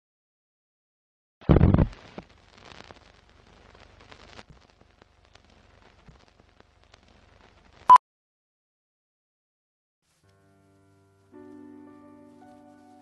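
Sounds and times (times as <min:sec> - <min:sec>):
old film crackle: 0:01.4 - 0:07.9, 0:10.1 - 0:13.0
faint hiss with clicks and pops: 0:01.4 - 0:08.0.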